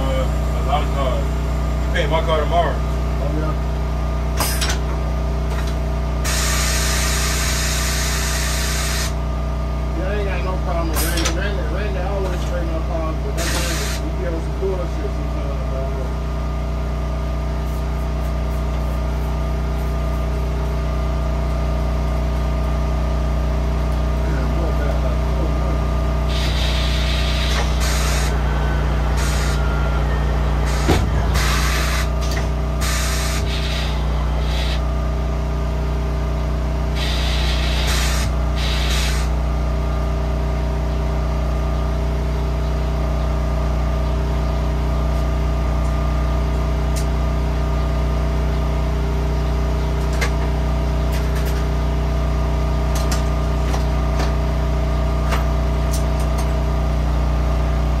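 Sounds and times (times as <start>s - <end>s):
steady machine hum: 0.0s - 58.0s
compressed air hissing: 6.3s - 9.2s, 13.4s - 14.0s, 26.3s - 28.4s, 29.2s - 29.6s, 30.6s - 34.8s, 37.0s - 39.4s.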